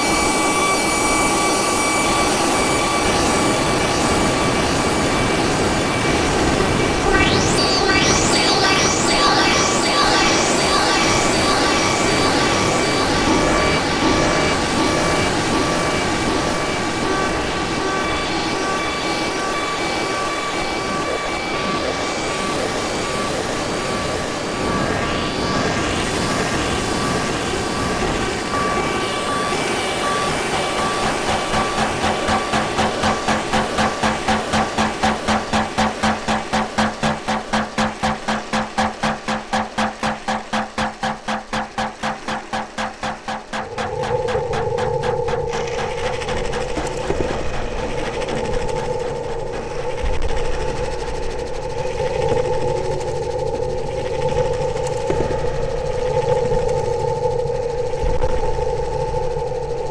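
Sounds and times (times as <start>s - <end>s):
held synthesizer tones: 2.2s - 17.2s, 29.4s - 50.9s
regular synth pulse: 2.4s - 23.6s, 29.8s - 59.9s
dense noise wash: 29.5s - 59.9s.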